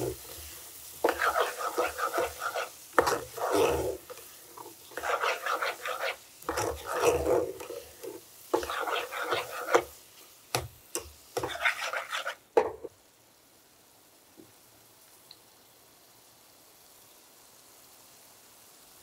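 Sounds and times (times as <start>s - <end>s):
metal spoon scraping a saucepan: 1.0s - 9.9s, 11.4s - 12.4s.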